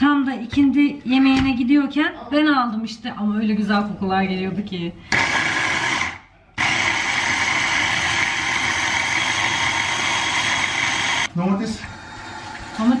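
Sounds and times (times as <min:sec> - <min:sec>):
electric food chopper running: 0:05.1 - 0:11.3.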